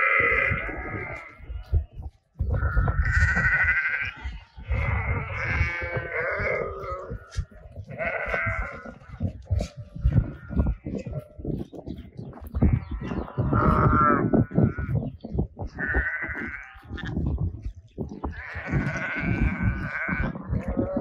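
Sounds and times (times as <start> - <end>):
sheep bleating: 0.0 - 1.8, 2.5 - 11.4, 15.8 - 17.3, 18.3 - 21.0
low rumble: 0.0 - 21.0.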